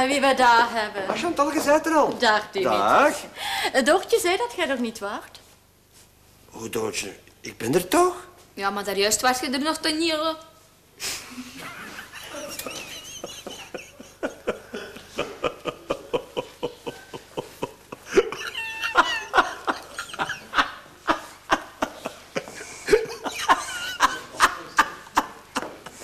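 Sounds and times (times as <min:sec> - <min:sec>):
people laughing: 0:11.4 - 0:26.0.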